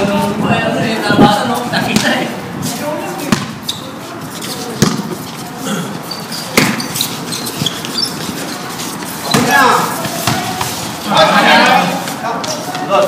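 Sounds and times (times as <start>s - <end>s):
basketball bouncing on hard floor: 3.3s - 3.6s, 4.8s - 5.1s, 6.6s - 6.9s, 9.2s - 10.7s.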